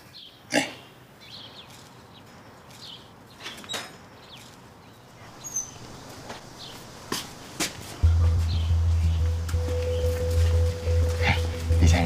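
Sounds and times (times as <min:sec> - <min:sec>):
faint bird chirps: 0:08.0 - 0:12.0.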